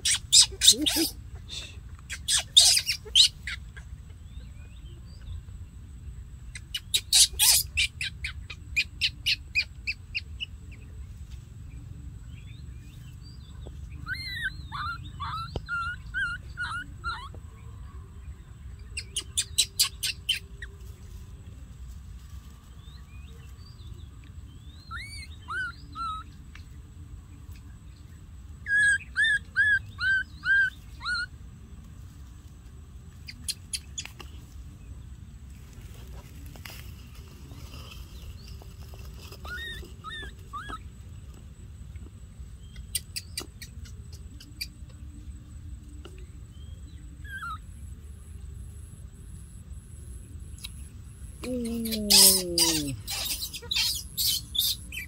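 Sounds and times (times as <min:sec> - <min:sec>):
baby monkey crying: 0:00.0 - 0:01.2, 0:02.1 - 0:03.8, 0:06.6 - 0:09.4, 0:14.0 - 0:17.4, 0:24.9 - 0:26.2, 0:28.6 - 0:31.3, 0:39.5 - 0:40.9, 0:51.4 - 0:55.0.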